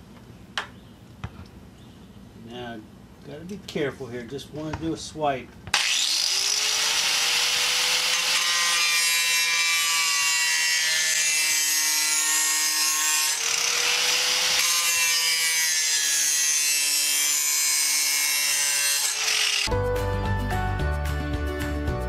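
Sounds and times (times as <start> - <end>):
angle grinder grinding steel: 5.8 - 19.7.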